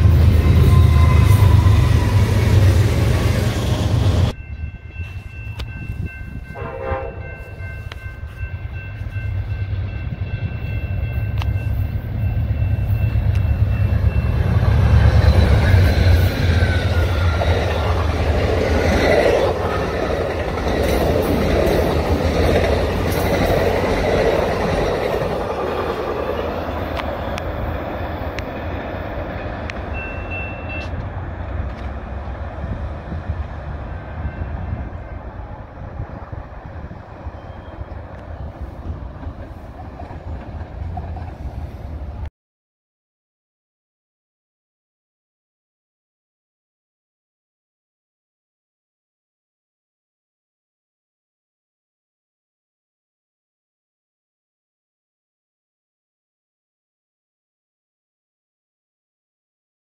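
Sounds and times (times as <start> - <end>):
train horn tones: 0.0 - 4.3, 6.4 - 8.4
freight train rumble: 0.0 - 42.3
passenger train passing: 0.0 - 42.3
train wheels on rails: 0.0 - 42.3.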